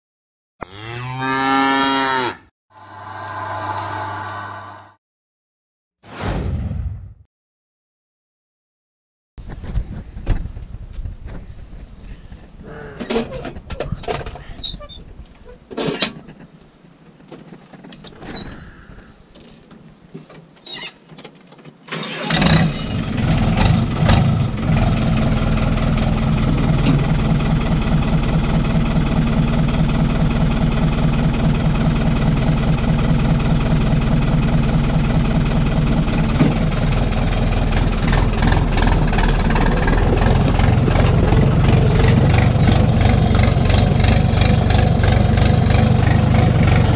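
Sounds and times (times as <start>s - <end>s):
tractor diesel engine idling: 24.5s - 46.9s.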